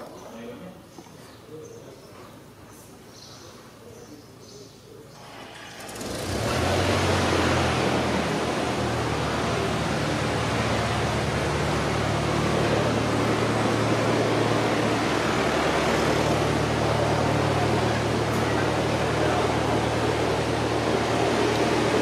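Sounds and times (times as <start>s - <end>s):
steady machine noise: 5.2s - 22.0s.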